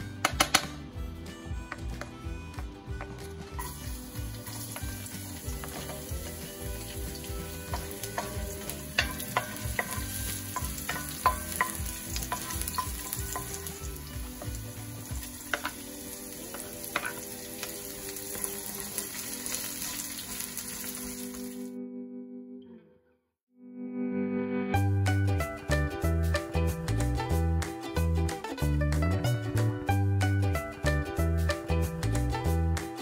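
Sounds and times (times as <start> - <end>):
garlic sizzling in hot oil: 3.4 - 21.8.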